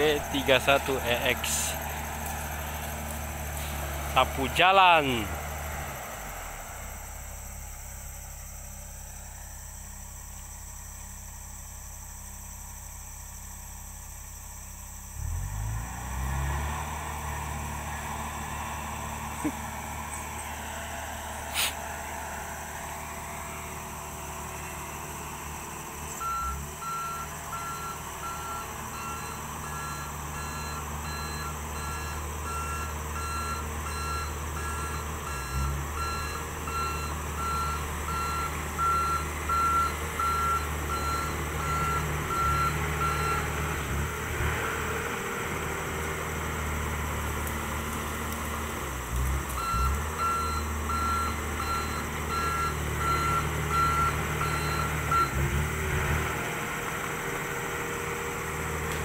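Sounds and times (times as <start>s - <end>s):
reversing alarm beeping: 0.0s - 2.6s, 24.5s - 43.6s, 49.6s - 55.5s
bulldozer engine running: 0.0s - 59.0s.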